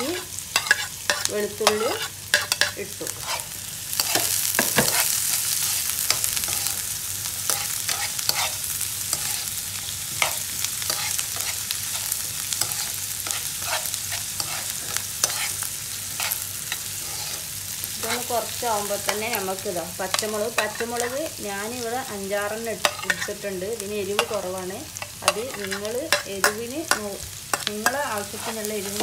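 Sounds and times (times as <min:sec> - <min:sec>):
onions sizzling in oil: 0:00.0 - 0:29.0
metal spoon scraping pan: 0:00.1 - 0:06.7, 0:07.5 - 0:09.5, 0:10.2 - 0:15.6, 0:22.8 - 0:23.4, 0:25.0 - 0:29.0.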